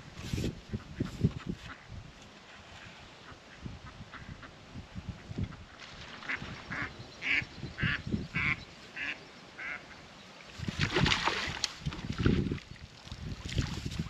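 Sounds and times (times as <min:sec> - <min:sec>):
duck quacking: 0:06.3 - 0:09.9
net splashing into water: 0:10.6 - 0:14.0.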